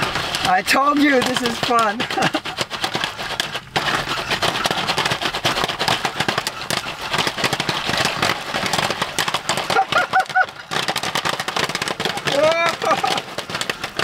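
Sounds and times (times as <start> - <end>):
popcorn popping: 0.0 - 14.0
person laughing: 2.0 - 2.6, 9.7 - 10.8, 12.3 - 13.2.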